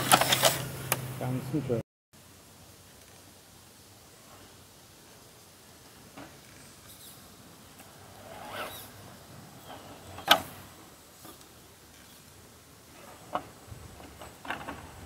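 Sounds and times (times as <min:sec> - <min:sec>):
rc crawler scrabbling over rock: 0:00.0 - 0:00.7, 0:06.1 - 0:15.0.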